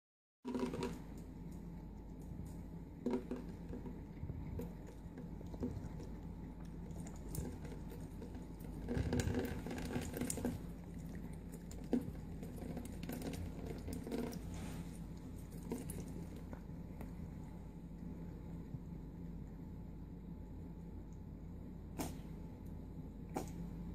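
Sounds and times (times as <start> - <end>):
cat lapping water: 3.0 - 18.8.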